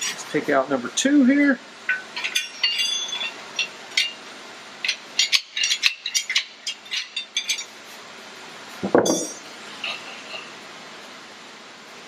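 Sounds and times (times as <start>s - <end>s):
steel bars clinking and scraping metal: 1.9s - 4.2s, 4.8s - 7.8s, 8.8s - 10.5s.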